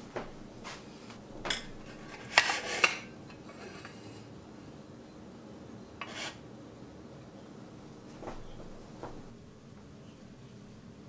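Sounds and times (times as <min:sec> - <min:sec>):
metal scraping: 0:01.3 - 0:04.2.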